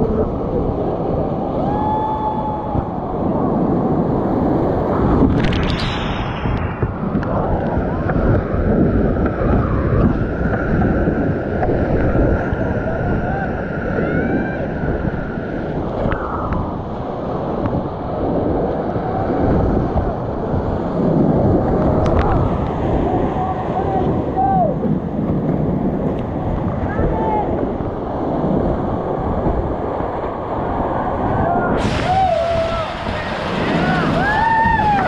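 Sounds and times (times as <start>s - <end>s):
wind rumbling on microphone: 0.0s - 35.0s
whitewater rushing: 30.6s - 35.0s.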